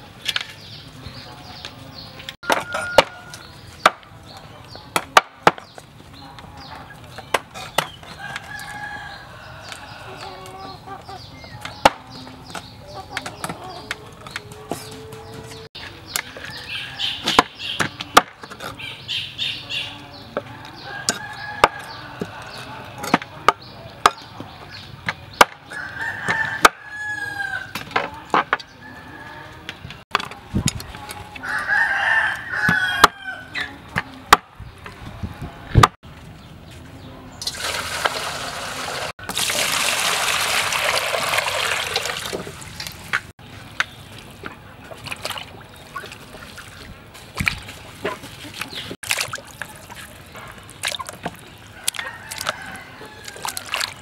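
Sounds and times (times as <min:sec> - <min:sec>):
chickens clucking: 0:00.3 - 0:35.9, 0:41.9 - 0:54.0
rooster crowing: 0:02.4 - 0:03.5, 0:08.2 - 0:10.6, 0:25.7 - 0:27.7, 0:31.4 - 0:33.6, 0:51.8 - 0:53.7
water poured into plastic basin: 0:37.4 - 0:43.0.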